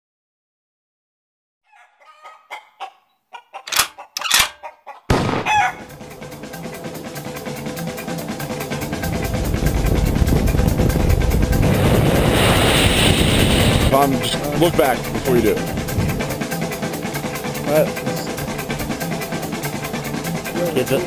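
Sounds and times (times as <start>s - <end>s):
fowl calls: 1.7s - 6.0s
music with steady beat: 13.9s - 21.0s.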